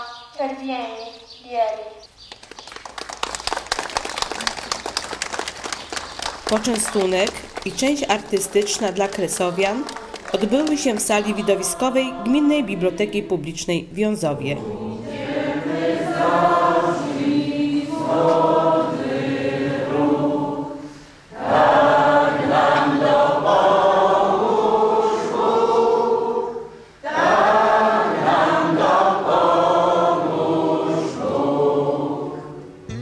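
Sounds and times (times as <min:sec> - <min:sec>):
group of voices singing: 0:08.2 - 0:13.4, 0:14.1 - 0:33.0.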